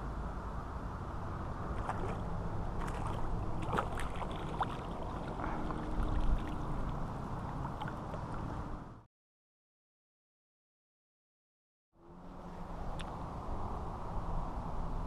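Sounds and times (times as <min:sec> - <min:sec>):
fish splashing in water: 0:01.7 - 0:08.3.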